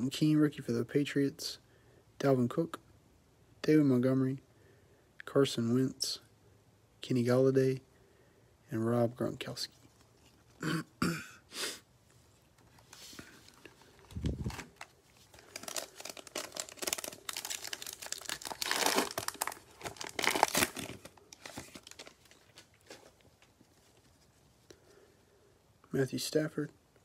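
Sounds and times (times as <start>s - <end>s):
plastic wrapper tearing and crinkling: 13.4s - 24.1s.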